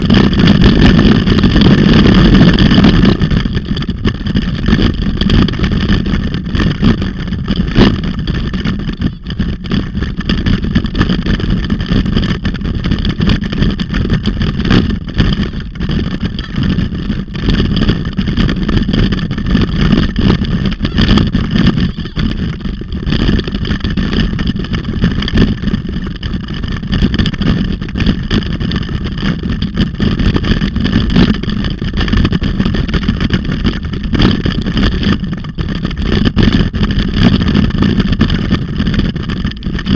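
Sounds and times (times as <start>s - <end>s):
rumble of riding on dirt trail: 0.0s - 39.9s
wind buffeting: 0.0s - 39.9s.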